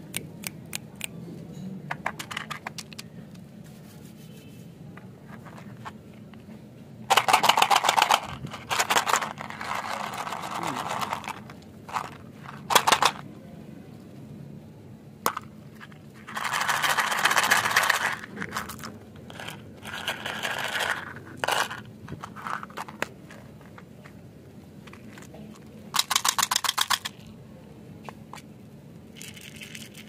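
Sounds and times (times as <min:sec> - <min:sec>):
mints rattling into a palm: 0:15.3 - 0:23.5, 0:25.9 - 0:27.3, 0:29.2 - 0:30.0.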